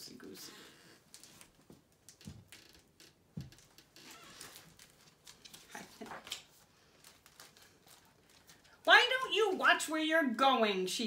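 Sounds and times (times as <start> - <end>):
light clicks and rustles: 1.1 - 8.8.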